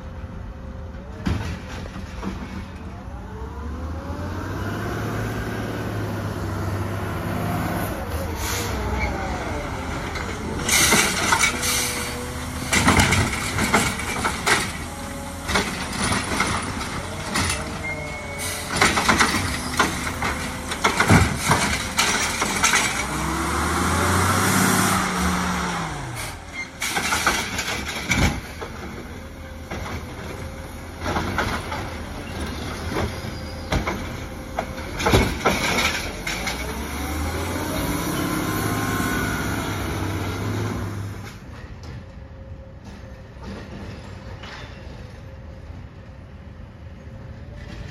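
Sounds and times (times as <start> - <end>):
carts clanking and banging: 1.0 - 3.1, 8.3 - 24.4, 25.0 - 42.2
diesel engine revving: 2.8 - 41.4.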